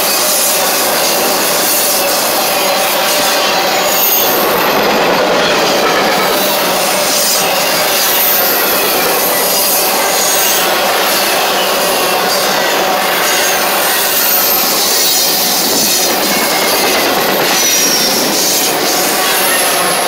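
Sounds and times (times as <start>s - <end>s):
high wheel squeal: 0.0s - 20.0s
train wheels rushing on rail: 0.0s - 20.0s.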